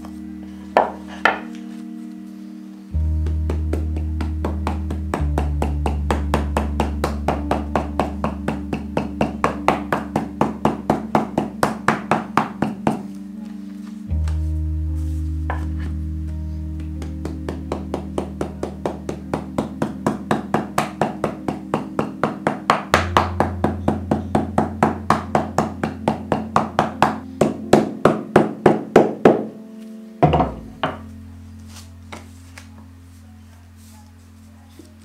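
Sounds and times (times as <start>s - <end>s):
calm background music: 0.0s - 35.0s
louder knocks: 30.2s - 31.0s.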